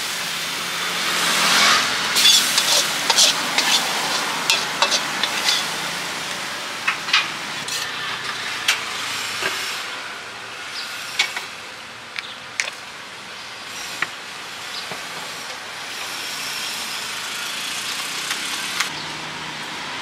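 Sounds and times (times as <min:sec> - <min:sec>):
noodles sizzling in a wok: 0:00.0 - 0:06.6
spatula clinking against wok: 0:02.2 - 0:05.8.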